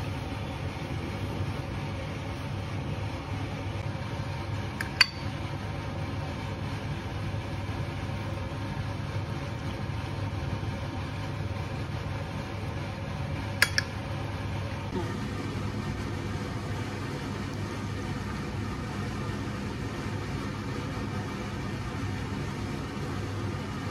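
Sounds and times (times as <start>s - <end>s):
steady low hum: 0.0s - 23.9s
metal spoon clinking on plate: 4.9s - 5.3s.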